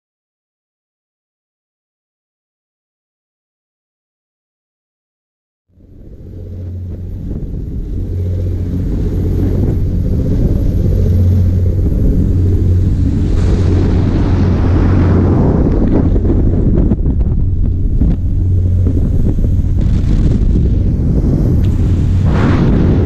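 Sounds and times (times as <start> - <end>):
diesel engine drone: 5.7 - 23.0
rushing wake water: 5.8 - 23.0
wind on microphone: 5.8 - 23.0.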